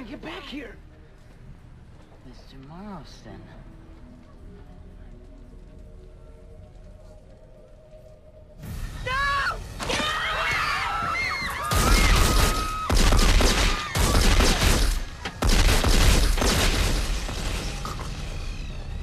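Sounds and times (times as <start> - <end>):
loud gunshot bursts: 11.9 - 17.4.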